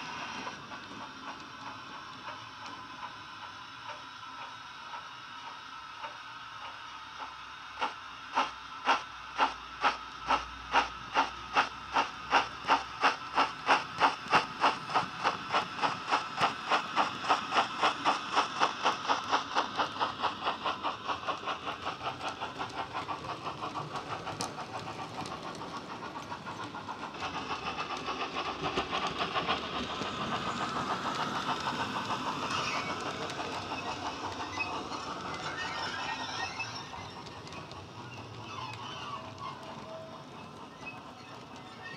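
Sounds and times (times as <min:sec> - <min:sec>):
steam locomotive chuffing: 0:00.0 - 0:41.9
model wagons running on track: 0:11.2 - 0:41.9.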